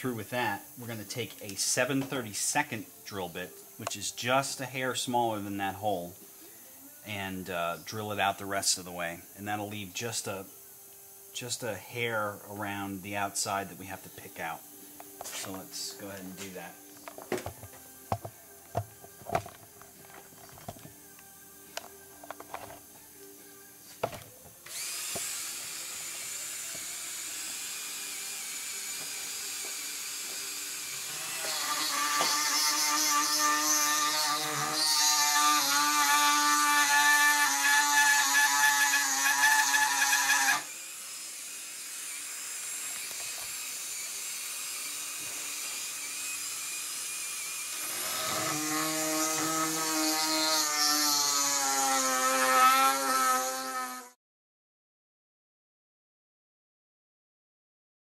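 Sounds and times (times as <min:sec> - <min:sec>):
rotary tool drilling whine: 0:21.8 - 0:54.2.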